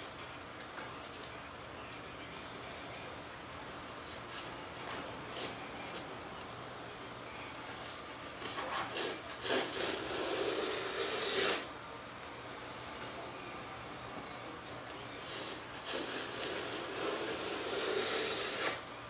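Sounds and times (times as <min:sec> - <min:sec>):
hand plane shaving wood: 0:08.4 - 0:11.7, 0:15.2 - 0:18.8.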